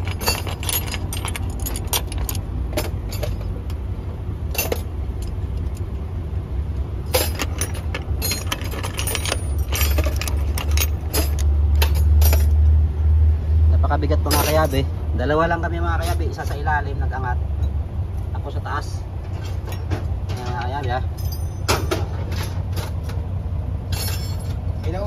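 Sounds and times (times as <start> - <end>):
metal tools clinking: 0.0 - 3.6, 4.5 - 5.8, 7.1 - 12.6, 14.2 - 14.9, 19.2 - 23.2, 23.9 - 25.0.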